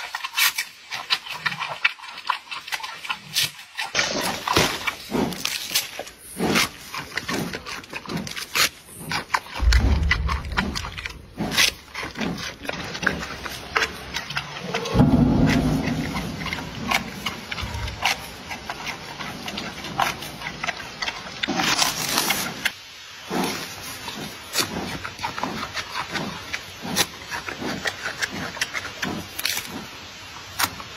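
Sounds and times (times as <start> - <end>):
panda chewing bamboo: 0.0 - 30.9
low rumble: 9.5 - 20.6.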